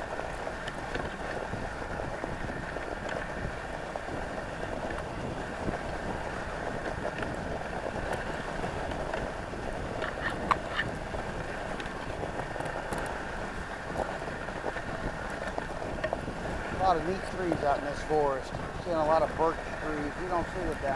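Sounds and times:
sled runners scraping on snow: 0.0s - 20.9s
wind on microphone: 0.0s - 20.9s
sharp clicks and creaks: 10.0s - 11.0s, 11.8s - 13.2s, 13.9s - 16.2s.

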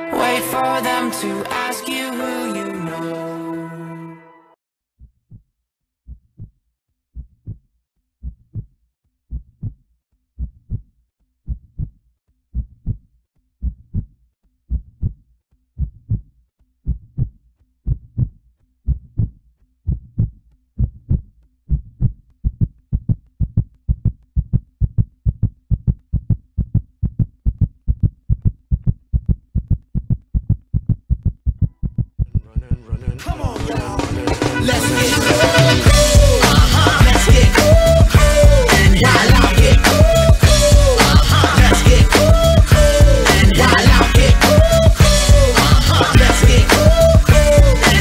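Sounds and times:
heartbeat-like low thumps: 21.8s - 48.0s.

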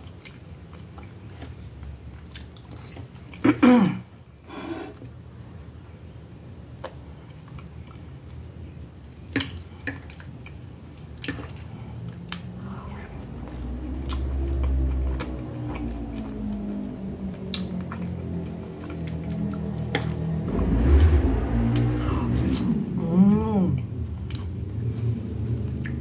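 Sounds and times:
person chewing food: 0.0s - 3.4s, 6.7s - 22.8s, 23.7s - 26.0s
low hum with bending pitch: 12.4s - 26.0s.

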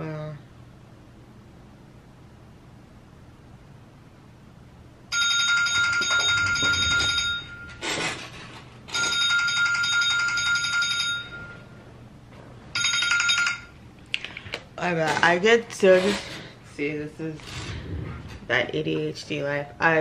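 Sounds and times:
telephone ringing: 5.1s - 7.8s, 8.9s - 11.8s, 12.7s - 13.8s.

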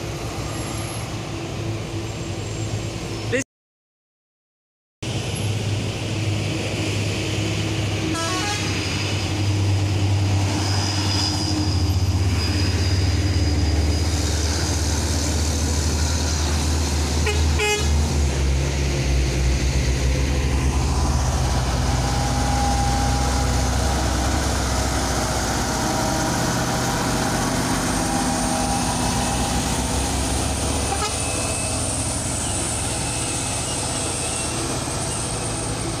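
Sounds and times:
diesel truck engines climbing: 5.1s - 36.0s
truck horns tooting: 8.0s - 8.9s, 17.2s - 18.0s, 30.8s - 35.2s.

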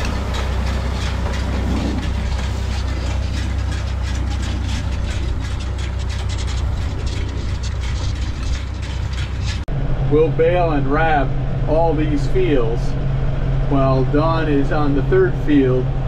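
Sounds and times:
hay rake clattering: 0.0s - 9.7s
tractor engine drone: 0.0s - 16.0s.

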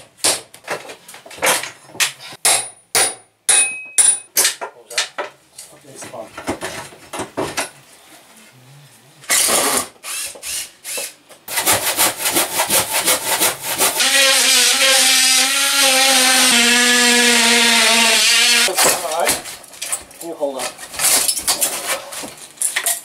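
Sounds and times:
power tool cutting: 11.5s - 18.8s.

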